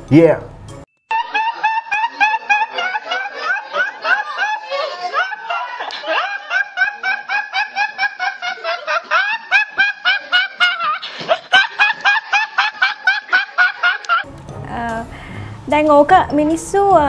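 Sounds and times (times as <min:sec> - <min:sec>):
high-pitched laughter: 0:01.1 - 0:14.3.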